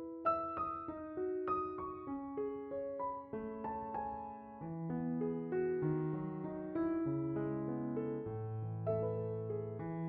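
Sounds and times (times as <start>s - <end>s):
slow gentle piano melody: 0.0s - 10.0s.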